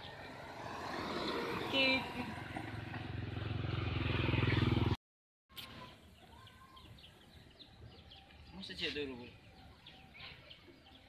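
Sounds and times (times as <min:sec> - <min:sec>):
bird chirps: 0:05.5 - 0:11.0.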